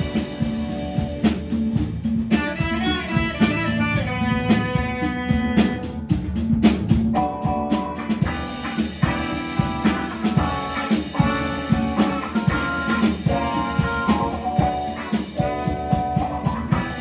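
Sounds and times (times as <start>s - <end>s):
band playing: 0.0s - 17.0s.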